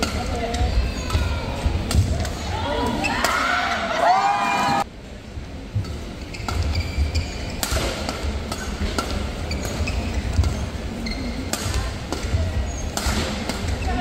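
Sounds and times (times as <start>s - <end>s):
rackets hitting shuttlecock: 7.5s - 10.6s, 11.4s - 13.8s.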